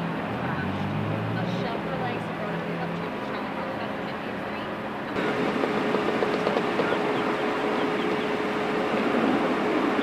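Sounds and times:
constant engine hum: 0.0s - 10.0s.

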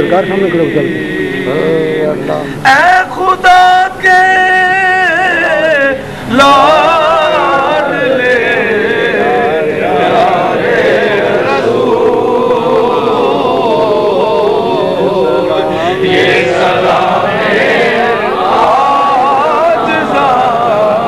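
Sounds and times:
man chanting: 0.0s - 16.9s
crowd of men chanting: 6.3s - 21.0s.

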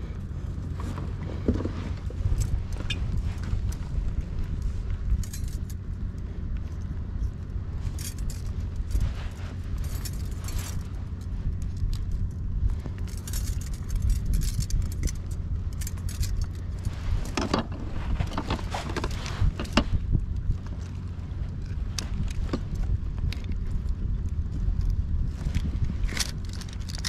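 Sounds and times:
wind rumble on microphone: 0.0s - 27.0s
metal hooks clinking: 5.1s - 5.8s, 7.8s - 12.3s, 13.0s - 19.8s.

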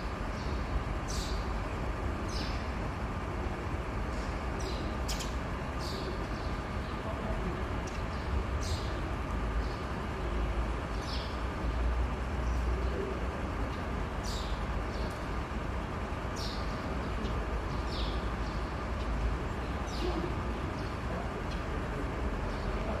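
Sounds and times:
small birds chirping: 0.0s - 3.2s, 3.8s - 23.0s.

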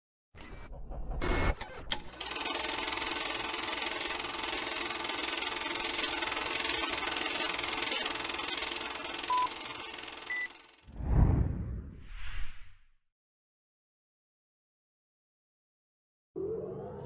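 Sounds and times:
film projector rattling: 2.0s - 10.9s.

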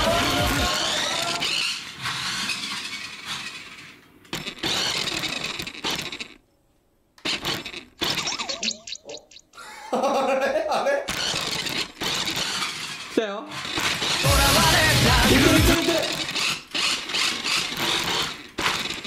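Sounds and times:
toy car rattling on wooden floor: 0.2s - 6.4s, 7.2s - 8.6s, 11.1s - 14.3s, 15.4s - 19.0s.

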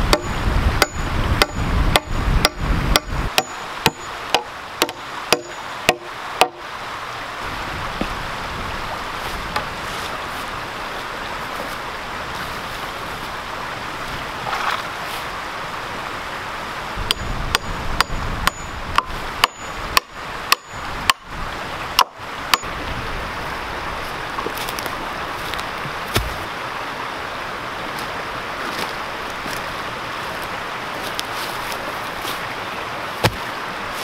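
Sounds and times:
creek water running: 0.0s - 34.0s
sharp metallic knocks: 0.1s - 6.6s, 17.0s - 21.2s, 22.0s - 22.7s.

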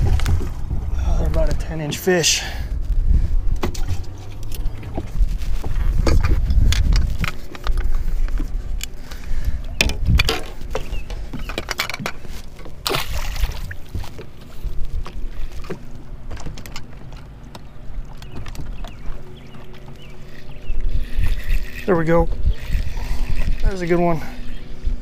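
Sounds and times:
fishing gear clattering: 3.6s - 24.4s.

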